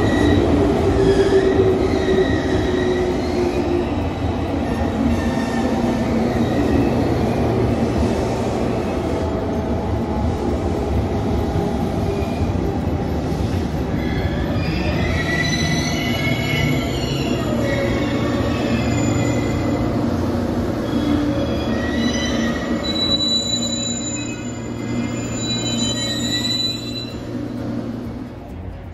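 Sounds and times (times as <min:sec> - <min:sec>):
train brakes squealing: 0:00.0 - 0:07.4, 0:13.4 - 0:20.0, 0:20.8 - 0:27.6
train wheels rumbling on rails: 0:00.0 - 0:28.9.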